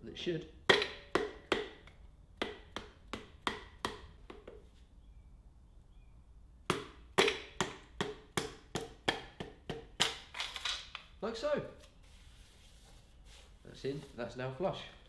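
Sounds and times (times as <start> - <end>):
mallet handle tapping on metal: 0.7 - 1.8.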